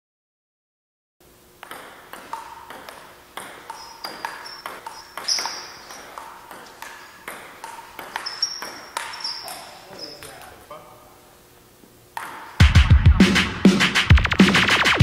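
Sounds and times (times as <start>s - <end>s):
table tennis ball pocks: 1.6s - 10.5s, 12.1s - 12.7s.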